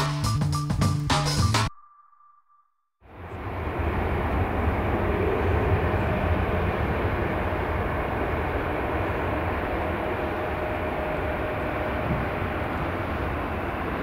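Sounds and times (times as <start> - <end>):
distant jet engines roaring: 3.1 - 14.0.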